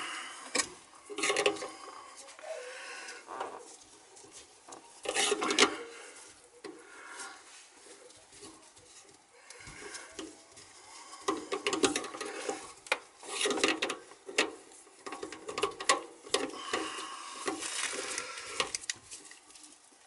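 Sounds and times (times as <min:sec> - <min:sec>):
metal pipe scraping and clicking: 0:00.5 - 0:01.8, 0:03.4 - 0:05.8, 0:09.4 - 0:19.5.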